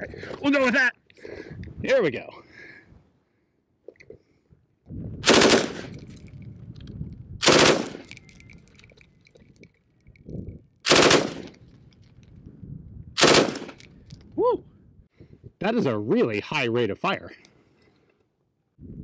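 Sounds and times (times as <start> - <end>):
machine gun bursts: 5.3 - 5.9, 7.4 - 8.1, 10.9 - 11.5, 13.2 - 13.8.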